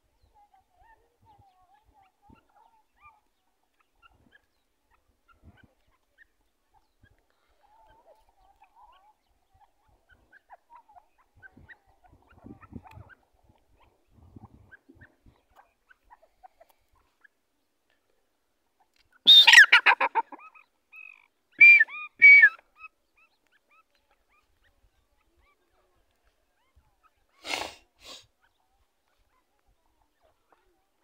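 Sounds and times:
francolin calling: 0:19.2 - 0:23.0.

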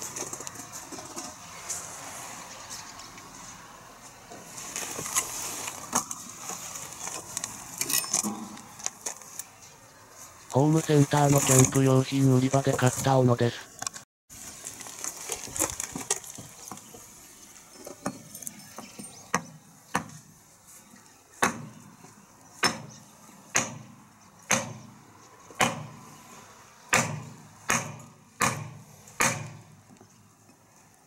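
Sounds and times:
hatchet chopping wood: 0:21.4 - 0:21.7, 0:22.6 - 0:22.9, 0:23.5 - 0:24.9, 0:25.6 - 0:26.0, 0:26.9 - 0:29.6.

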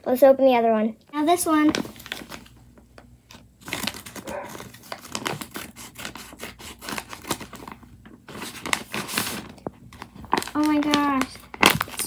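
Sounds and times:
paper crinkling: 0:01.5 - 0:12.0
scissors snipping paper: 0:04.1 - 0:07.5.

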